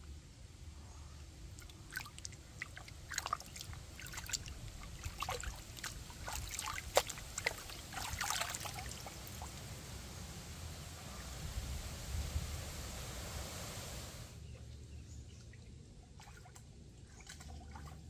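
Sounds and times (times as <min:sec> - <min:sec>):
water splashing in a basin: 0:01.5 - 0:10.0, 0:16.1 - 0:18.0.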